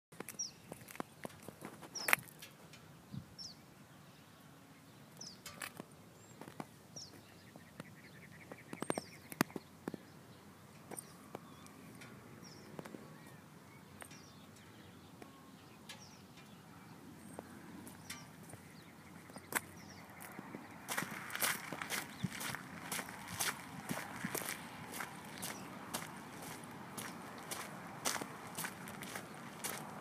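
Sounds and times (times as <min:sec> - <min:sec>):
footsteps clicking and crunching: 0:00.1 - 0:02.7, 0:17.3 - 0:30.0
small bird chirping: 0:10.8 - 0:21.1.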